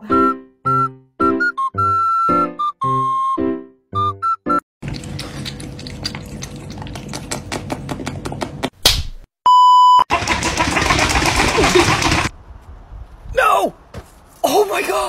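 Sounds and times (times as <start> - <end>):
cat lapping water: 4.8 - 8.2.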